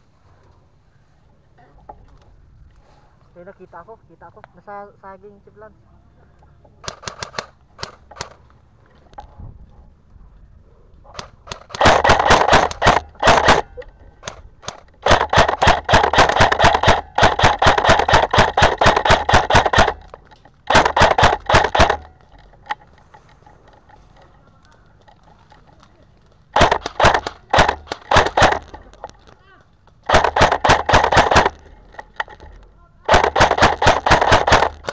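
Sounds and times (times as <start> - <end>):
airsoft rifle shots: 6.8 - 8.4, 11.1 - 22.8, 26.5 - 29.2, 30.0 - 34.9.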